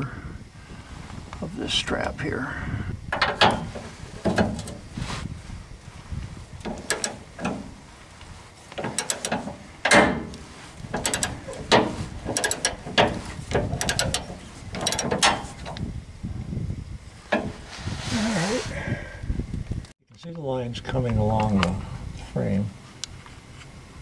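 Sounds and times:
ratchet wrench clicking: 0:06.6 - 0:07.5, 0:08.8 - 0:10.1, 0:11.0 - 0:15.8.

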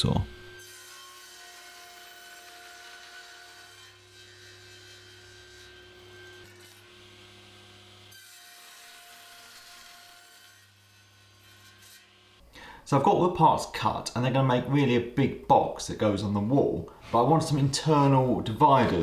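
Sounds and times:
table saw motor whine: 0:00.3 - 0:10.6.

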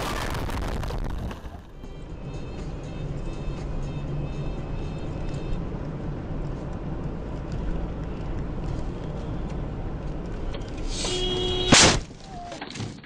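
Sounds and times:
car crash: 0:00.0 - 0:01.7
car road and engine noise: 0:00.0 - 0:13.0.

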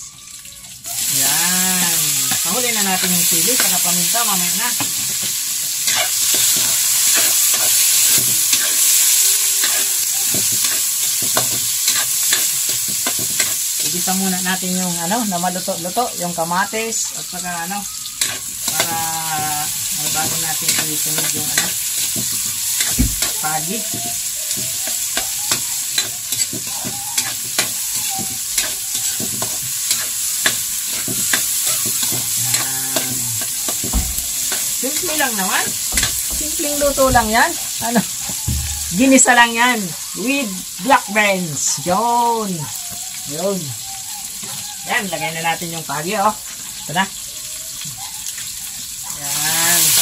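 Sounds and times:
vegetables sizzling in hot oil: 0:00.0 - 0:50.0
spatula scraping a wok: 0:02.0 - 0:14.6, 0:18.2 - 0:39.4.

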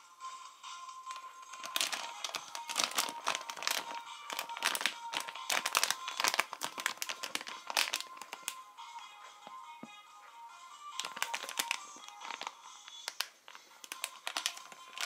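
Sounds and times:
foil wrapper crinkling: 0:01.1 - 0:08.6, 0:11.0 - 0:15.0.

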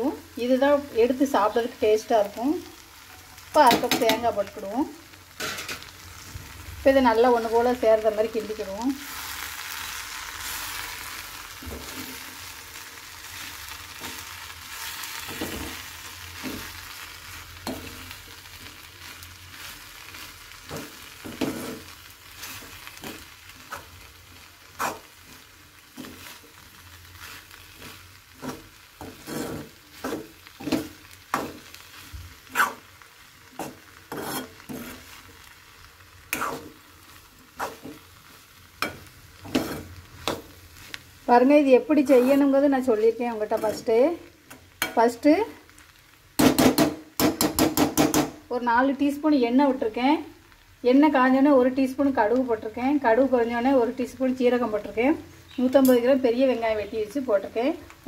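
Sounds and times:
frying sizzle: 0:00.0 - 0:58.0
metal spoon scraping pan: 0:28.4 - 0:31.6, 0:33.6 - 0:35.1, 0:36.3 - 0:36.8, 0:37.6 - 0:38.0, 0:38.8 - 0:40.4, 0:42.0 - 0:42.6.

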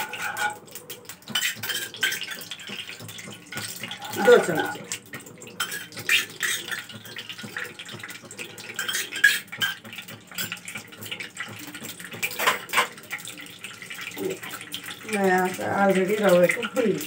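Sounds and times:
metal spoon clinking and scraping: 0:00.0 - 0:00.6, 0:01.3 - 0:02.9, 0:05.6 - 0:07.2, 0:08.7 - 0:09.8, 0:12.2 - 0:13.0.

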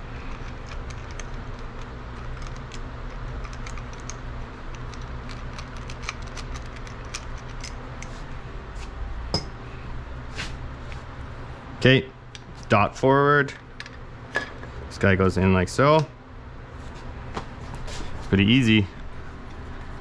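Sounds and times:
steady low hum: 0:00.0 - 0:20.0
metal engine parts clinking: 0:00.3 - 0:08.1, 0:09.3 - 0:09.6.

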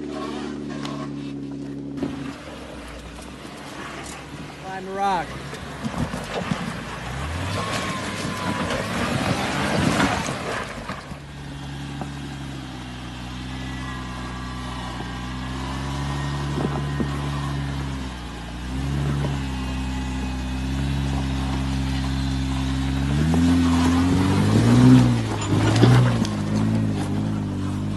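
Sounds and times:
engine running at low revs: 0:00.0 - 0:27.9
tyres crunching on rock: 0:05.1 - 0:12.5.

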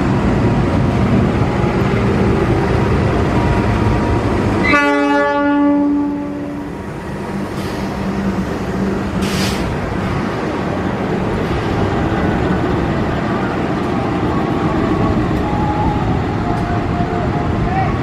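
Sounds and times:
diesel locomotives running: 0:00.0 - 0:18.0
short hiss: 0:09.2 - 0:09.8.

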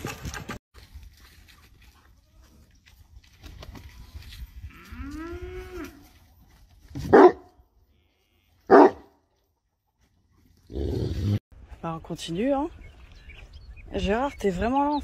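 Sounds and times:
bark-like animal calls: 0:07.1 - 0:07.5, 0:08.7 - 0:09.1.

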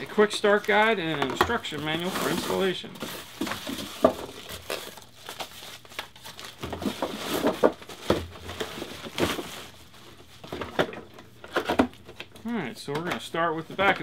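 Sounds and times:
plastic bag crinkling: 0:00.0 - 0:09.9.

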